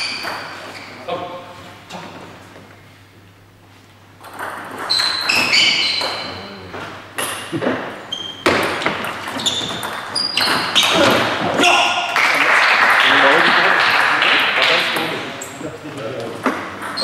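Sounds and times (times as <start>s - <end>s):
shoes squeaking on wooden floor: 0.0s - 3.0s, 4.7s - 11.6s.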